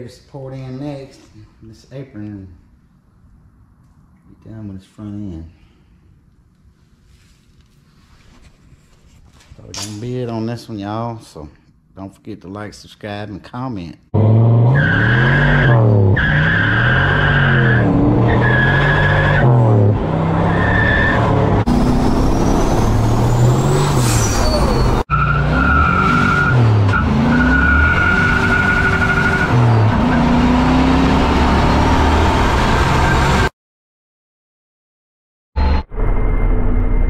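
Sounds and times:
car engine revving: 0:14.2 - 0:33.5.

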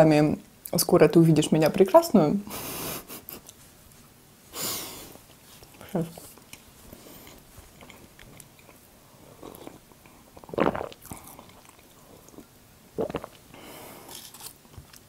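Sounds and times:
woman sipping tea: 0:09.2 - 0:14.3.

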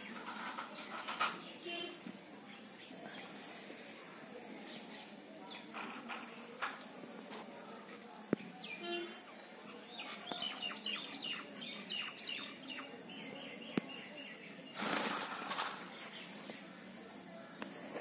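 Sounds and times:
loud rustling: 0:14.7 - 0:16.5.

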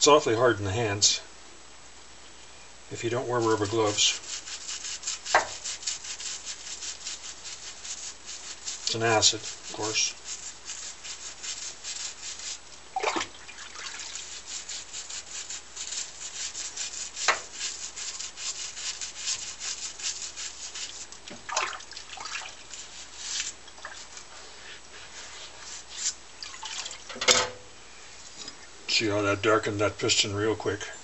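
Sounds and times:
toothbrush scrubbing metal: 0:03.1 - 0:12.8, 0:13.8 - 0:21.2, 0:22.3 - 0:26.2.

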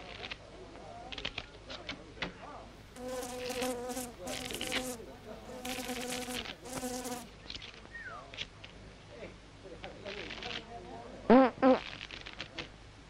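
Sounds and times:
buzzing fart sounds: 0:03.0 - 0:07.3, 0:11.3 - 0:12.0.

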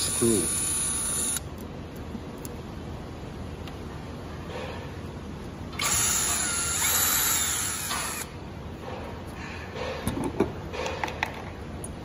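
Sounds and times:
cordless drill whining: 0:00.1 - 0:01.4, 0:05.8 - 0:08.3.

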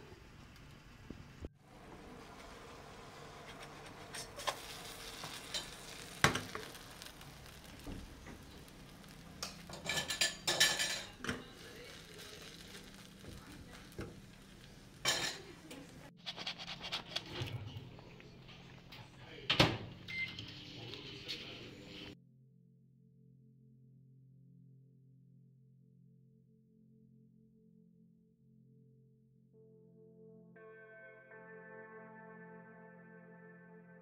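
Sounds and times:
food sizzling in a pan: 0:00.0 - 0:16.1
metal utensil scraping a pan: 0:03.4 - 0:07.8, 0:09.0 - 0:13.0, 0:14.6 - 0:17.8.

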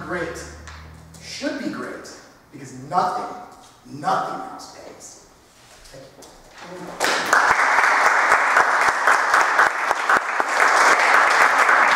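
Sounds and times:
audience applauding: 0:06.9 - 0:11.9.

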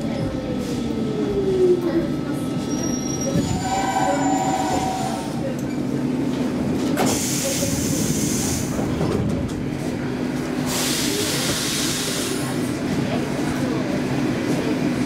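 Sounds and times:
train low hum: 0:00.0 - 0:15.0
train hissing bursts: 0:03.6 - 0:05.4, 0:10.7 - 0:12.5.

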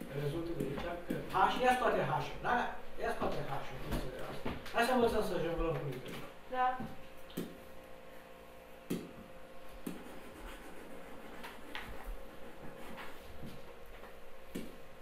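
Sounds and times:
pen tapping and scratching: 0:09.8 - 0:13.2.

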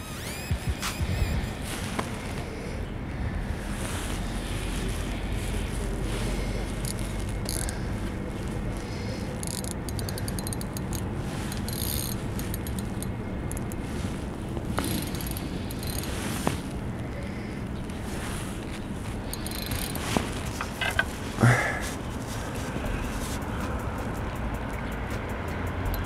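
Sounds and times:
wind and city rumble: 0:00.0 - 0:26.0
fishing reel ticking: 0:06.3 - 0:16.8, 0:18.8 - 0:21.1, 0:22.7 - 0:26.0
light clicks: 0:22.4 - 0:26.0.

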